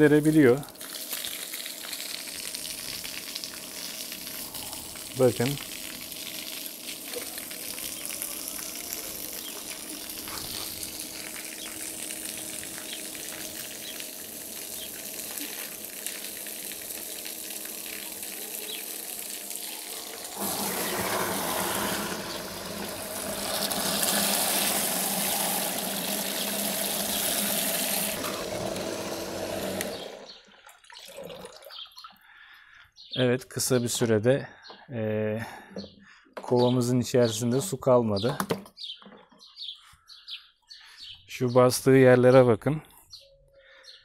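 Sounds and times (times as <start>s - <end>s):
water jet splashing on paving: 0.0s - 30.2s
water pump humming: 0.0s - 30.5s.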